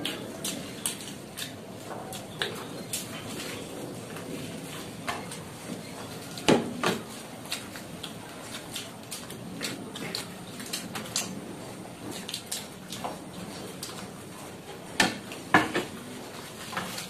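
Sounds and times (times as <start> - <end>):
eating with hands: 0.0 - 17.0
chewing: 7.1 - 14.5.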